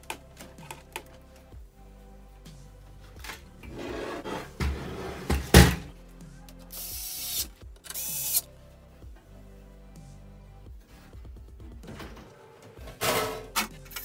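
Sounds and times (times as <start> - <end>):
background music: 0.0 - 14.0
electric screwdriver driving a screw: 6.7 - 8.4.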